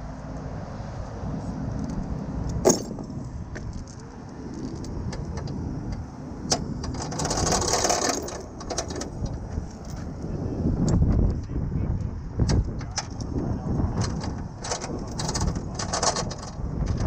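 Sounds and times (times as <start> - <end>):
metal chain clinking and rattling: 1.8 - 3.9, 6.9 - 9.2, 14.6 - 16.6.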